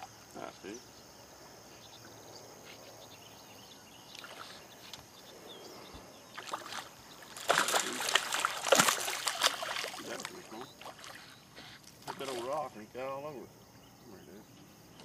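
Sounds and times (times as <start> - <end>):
water splashing and sloshing: 4.1 - 5.0, 6.2 - 12.8.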